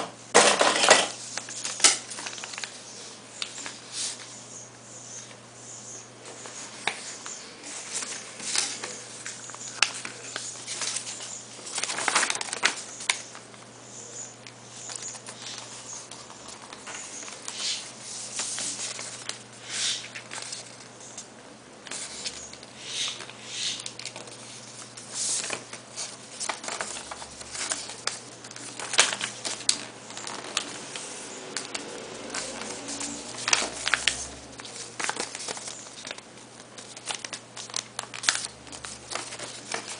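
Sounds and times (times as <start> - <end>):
paper rustling and creasing: 0.4 - 4.4, 6.2 - 13.7, 14.5 - 39.9.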